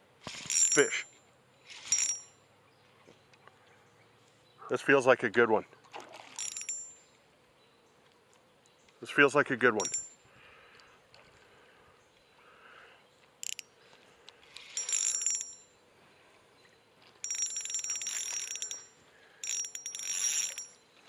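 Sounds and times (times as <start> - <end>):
fishing reel drag clicking: 13.4 - 13.7.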